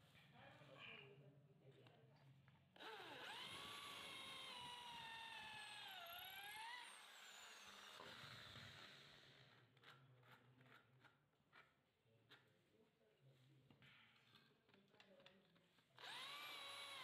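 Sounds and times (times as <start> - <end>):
electric drill whining: 2.8 - 9.6, 16.0 - 17.0.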